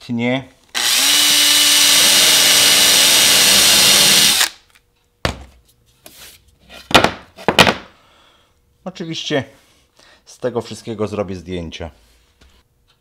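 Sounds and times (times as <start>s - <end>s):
electric drill drilling: 0.7s - 4.6s.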